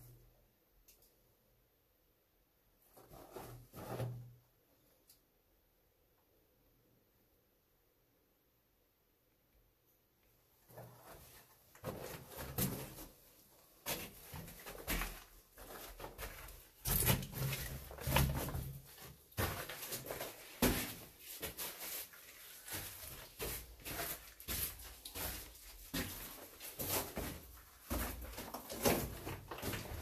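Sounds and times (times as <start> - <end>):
footsteps crunching on rock rubble: 22.6 - 30.0.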